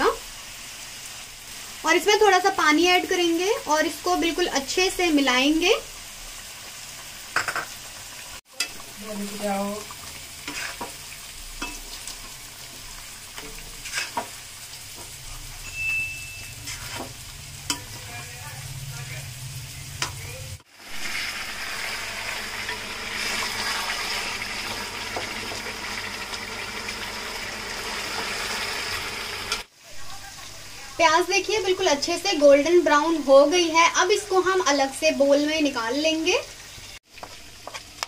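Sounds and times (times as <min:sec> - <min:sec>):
food sizzling in a pan: 0:00.0 - 0:38.0
spoon stirring and scraping: 0:10.4 - 0:12.4, 0:13.4 - 0:18.0.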